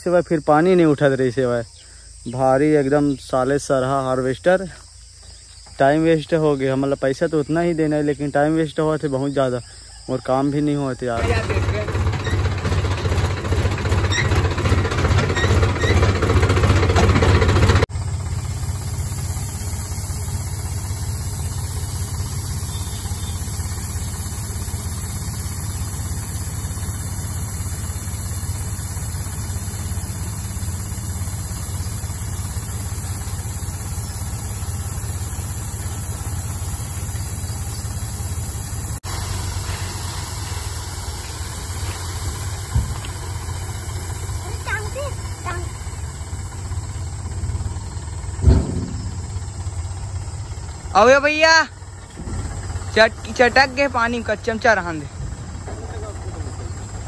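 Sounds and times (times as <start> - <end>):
tractor diesel engine running: 10.3 - 57.0
steady high hiss: 18.1 - 57.0.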